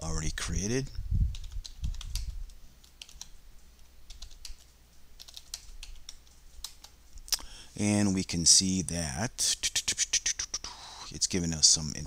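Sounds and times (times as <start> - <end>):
typing on computer keyboard: 1.3 - 3.3, 4.1 - 7.0.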